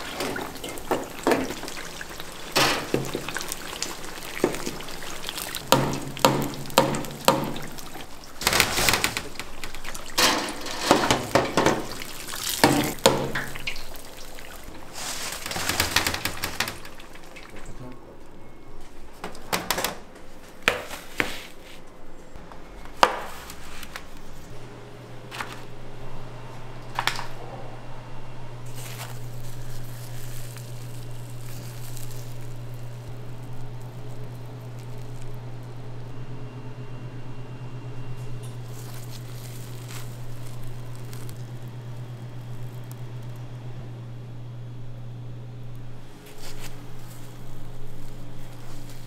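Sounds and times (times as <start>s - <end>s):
low machine hum: 0.0s - 20.6s, 21.8s - 49.0s
doughnuts being torn apart: 28.7s - 35.4s, 38.6s - 43.4s.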